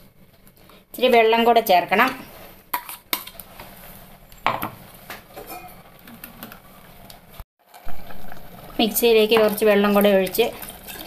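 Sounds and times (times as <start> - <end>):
steel ladle scraping pot: 5.4 - 6.6, 9.3 - 11.0.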